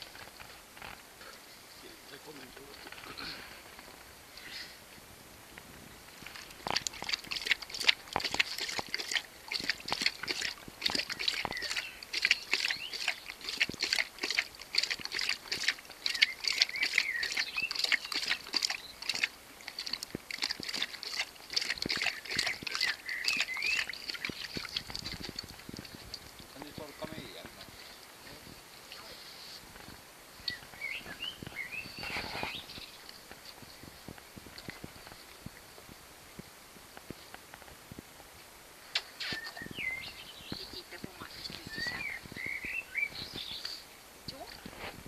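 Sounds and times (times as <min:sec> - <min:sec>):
dog lapping water from bowl: 0:06.6 - 0:26.4.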